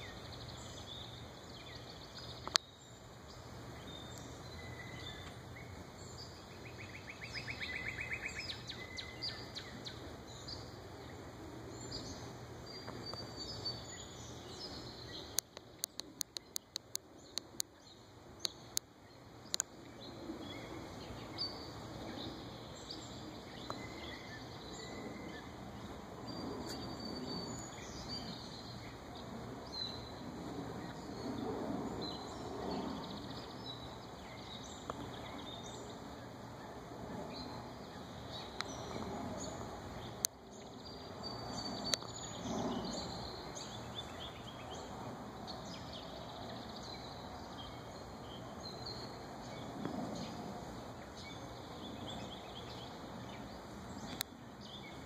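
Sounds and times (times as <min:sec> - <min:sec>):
songbirds chirping: 0:00.0 - 0:55.0
sharp clicks: 0:15.3 - 0:17.7.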